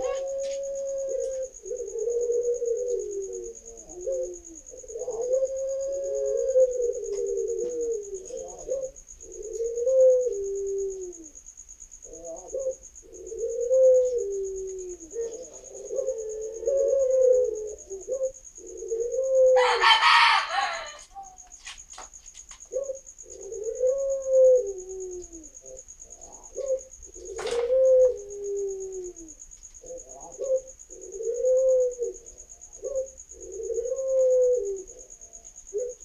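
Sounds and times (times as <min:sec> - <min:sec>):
doves cooing: 0:00.0 - 0:21.8, 0:22.6 - 0:36.0
insect trill: 0:00.0 - 0:36.0.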